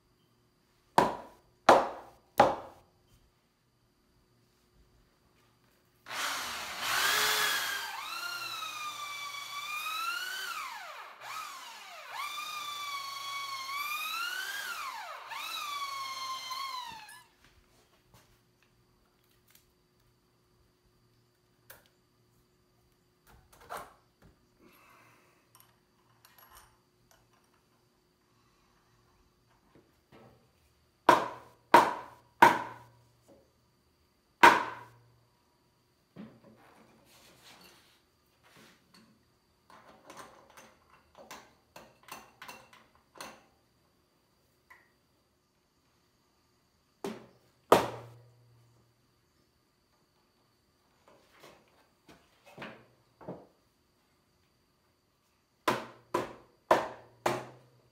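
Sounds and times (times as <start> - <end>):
hammer striking timber: 1.0 - 2.8, 31.1 - 32.8, 34.4 - 34.9, 47.7 - 48.1, 55.6 - 57.6
drill boring through wood: 6.1 - 17.3.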